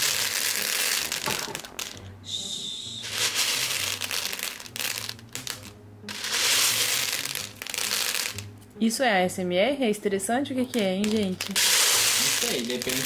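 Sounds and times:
plastic beads rattling in a bowl: 0.0s - 2.0s, 3.0s - 8.5s, 10.6s - 13.0s.

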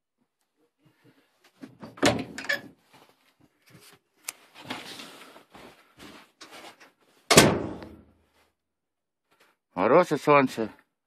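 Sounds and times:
door thump: 7.3s - 8.0s.

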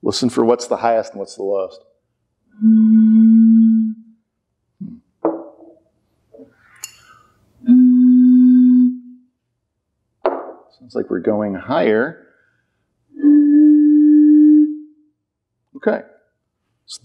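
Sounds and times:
blown bottle tones: 2.5s - 4.2s, 6.4s - 9.3s, 13.1s - 15.1s.

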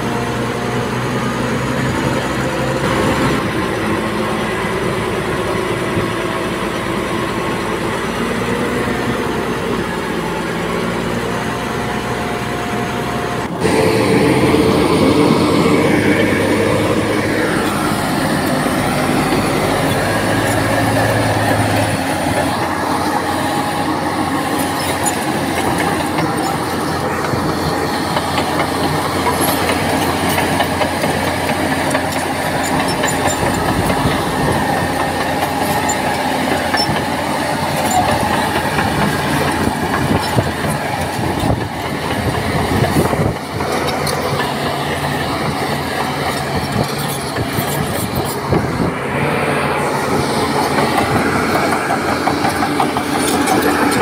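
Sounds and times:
diesel engine under load: 0.0s - 54.0s
steel tracks clanking and squealing: 12.8s - 54.0s.

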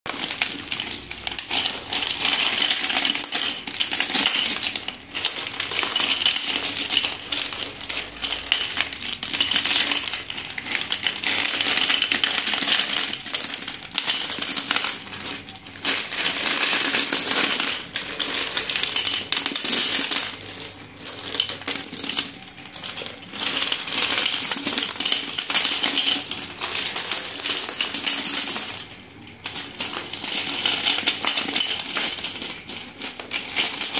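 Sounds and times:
sticks clattering in steel bowl: 0.1s - 33.9s.

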